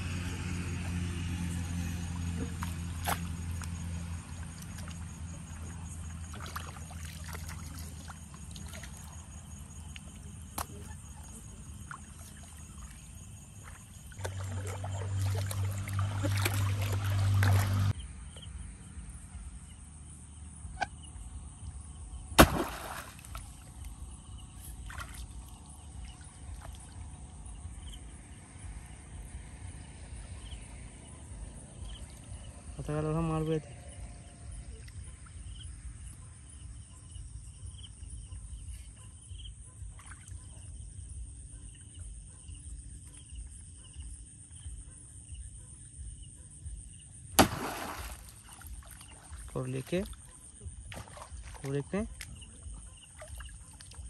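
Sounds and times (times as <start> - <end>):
water sloshing and splashing: 0.1 - 18.0, 22.4 - 27.7, 47.4 - 54.0
sharp smack: 22.4 - 23.1, 47.4 - 47.8.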